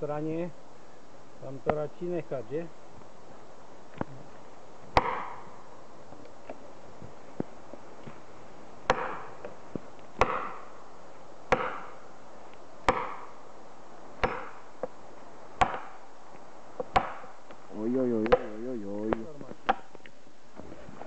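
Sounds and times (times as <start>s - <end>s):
wedge blows cracking and ringing: 5.0s - 5.4s, 8.9s - 9.3s, 10.2s - 10.6s, 11.5s - 12.0s, 12.9s - 13.3s, 14.2s - 14.6s.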